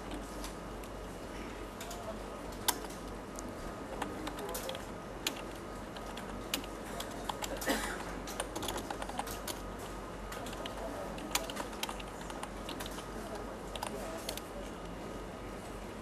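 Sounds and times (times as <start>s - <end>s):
computer keyboard key clicks: 3.9s - 7.7s, 8.3s - 9.6s, 10.3s - 13.1s.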